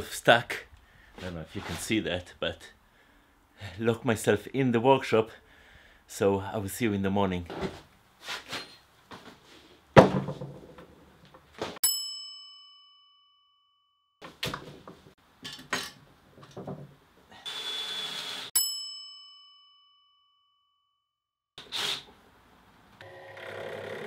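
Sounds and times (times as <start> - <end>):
bright bell-like ding: 11.8 - 13.4.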